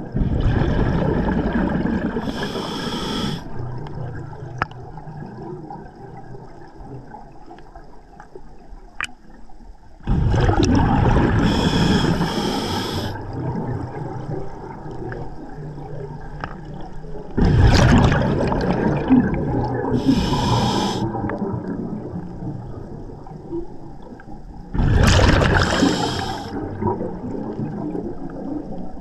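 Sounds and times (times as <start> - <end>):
high hiss: 2.2 - 3.5, 11.5 - 13.2, 20.0 - 21.1, 25.6 - 26.5.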